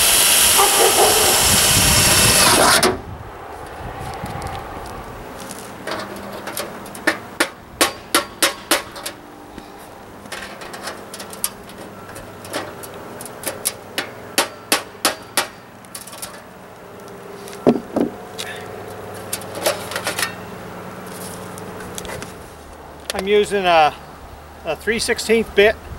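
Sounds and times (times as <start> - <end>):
loud knock: 17.7 - 18.2.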